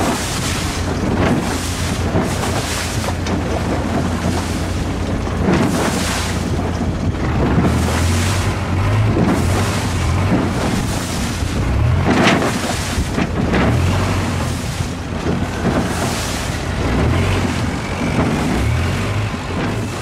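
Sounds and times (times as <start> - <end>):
motorboat engine running: 0.0 - 20.0
water rushing along hull: 0.0 - 20.0
wind buffeting microphone: 0.0 - 20.0.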